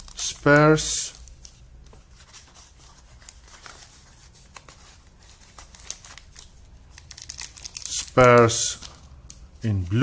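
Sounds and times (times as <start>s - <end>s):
plastic bags crinkling: 5.4s - 9.5s.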